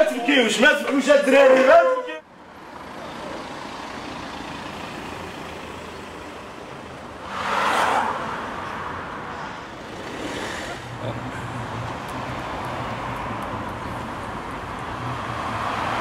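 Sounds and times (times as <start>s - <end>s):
street traffic noise: 0.0s - 16.0s
car passing close by: 7.1s - 13.4s, 15.0s - 16.0s.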